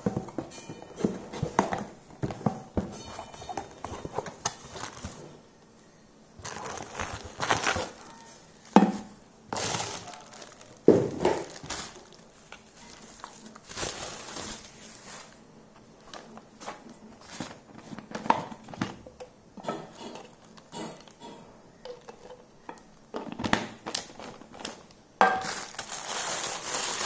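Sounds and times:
bubble wrap crinkling: 0:03.0 - 0:05.4, 0:06.4 - 0:18.2, 0:23.6 - 0:27.0.

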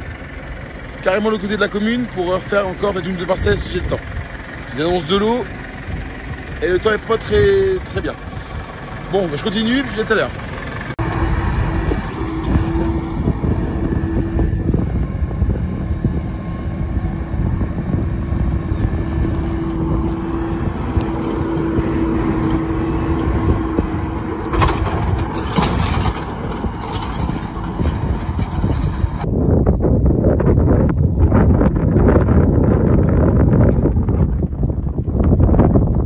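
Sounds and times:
tractor engine under load: 0:00.0 - 0:29.3
drive line whine: 0:10.8 - 0:29.4.

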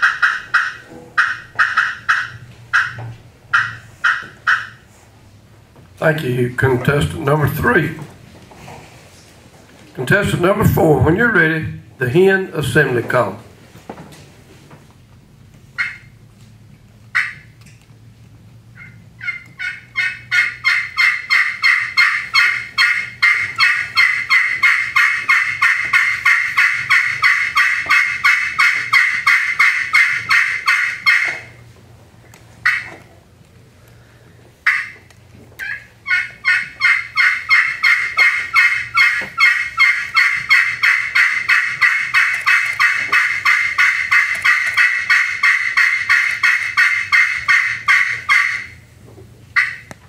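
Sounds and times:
turkey call hen yelps: 0:00.0 - 0:04.9, 0:15.8 - 0:16.2, 0:17.1 - 0:17.5, 0:18.8 - 0:31.6, 0:32.6 - 0:33.0, 0:34.6 - 0:48.8, 0:49.6 - 0:49.9.

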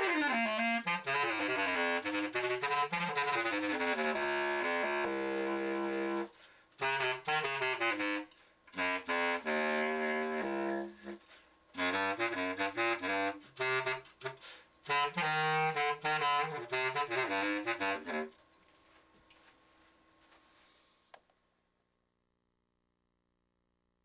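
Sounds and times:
bass clarinet playing notes: 0:00.0 - 0:18.4.

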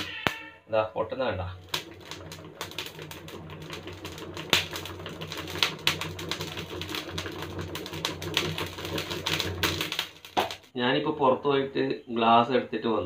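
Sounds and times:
charcoal crackling and popping: 0:00.0 - 0:00.6, 0:01.3 - 0:10.8.

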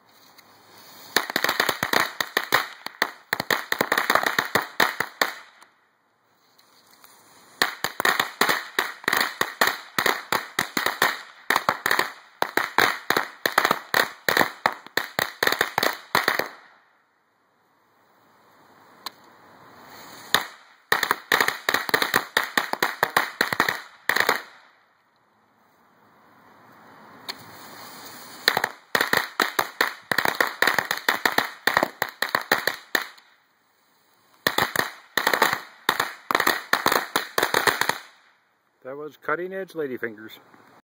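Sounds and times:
rising hiss: 0:00.3 - 0:01.4, 0:17.9 - 0:20.7, 0:25.6 - 0:29.1
firecrackers cracking: 0:00.3 - 0:05.8, 0:06.6 - 0:17.0, 0:18.9 - 0:25.0, 0:27.1 - 0:38.6.

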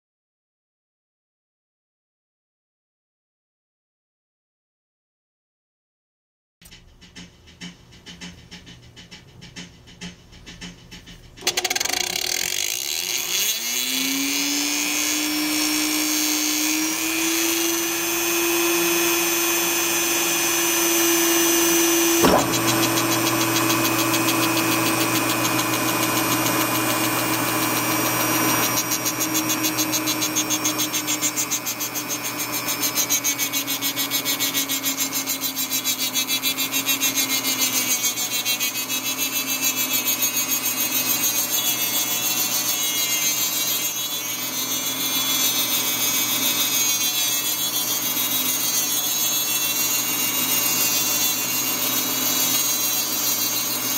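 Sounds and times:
rotary tool motor whining: 0:11.4 - 0:53.9.

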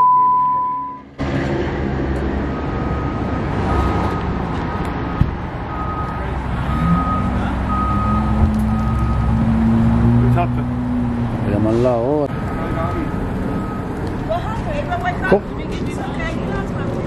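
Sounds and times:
reversing alarm beeping: 0:00.0 - 0:01.1, 0:02.6 - 0:09.3, 0:12.3 - 0:14.0
vehicle engine rumbling: 0:00.0 - 0:17.0.

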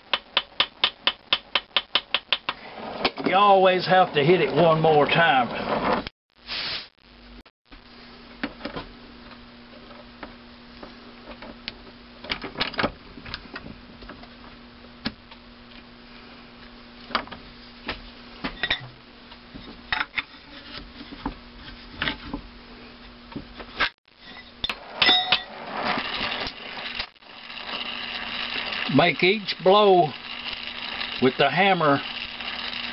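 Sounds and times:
gas torch hissing: 0:26.0 - 0:32.9.

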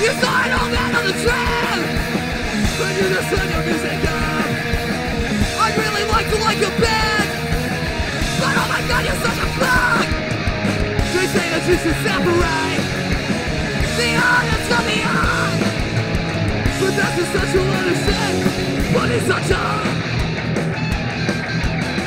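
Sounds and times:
punk rock band playing: 0:00.0 - 0:22.0
yelled vocals: 0:00.0 - 0:22.0.

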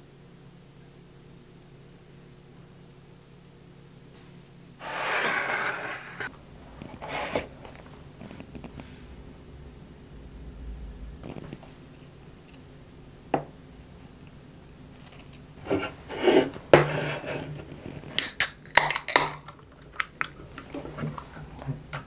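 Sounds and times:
beer can opening with fizzing hiss: 0:18.1 - 0:20.4.

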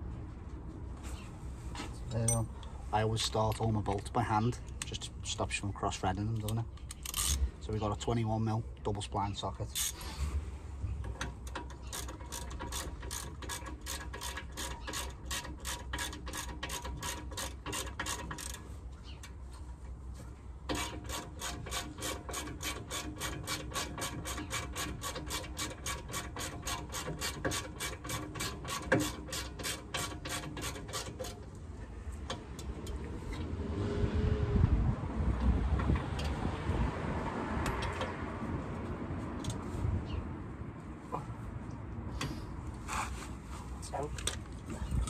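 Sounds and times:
hand ratchet clicking: 0:11.4 - 0:18.6, 0:20.7 - 0:31.4.

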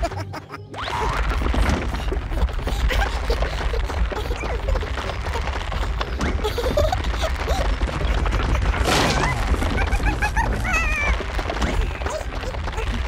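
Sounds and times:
low background music: 0:00.0 - 0:07.9
squeaky whimpering character noises: 0:00.0 - 0:13.0.

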